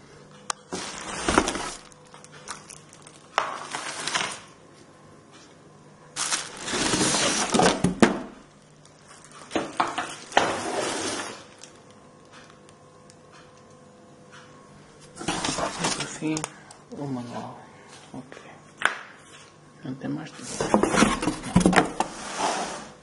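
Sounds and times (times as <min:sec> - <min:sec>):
cardboard rustling: 0:00.7 - 0:04.4, 0:06.2 - 0:08.1
plastic wrapping crinkling: 0:00.7 - 0:04.6, 0:06.2 - 0:10.4, 0:11.1 - 0:12.0.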